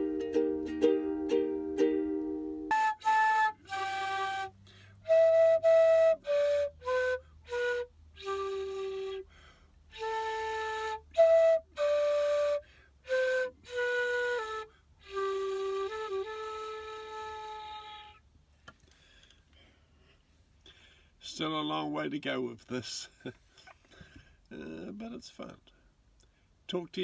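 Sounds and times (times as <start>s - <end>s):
bamboo flute played slowly: 0.0s - 18.3s.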